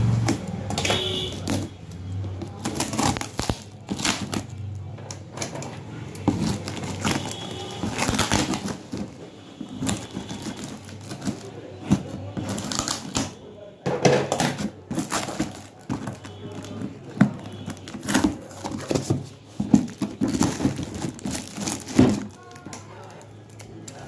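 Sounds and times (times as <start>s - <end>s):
plastic and tape crinkling: 0.0s - 13.6s, 14.3s - 24.0s
cardboard scraping and knocking: 5.4s - 13.3s, 14.0s - 22.4s.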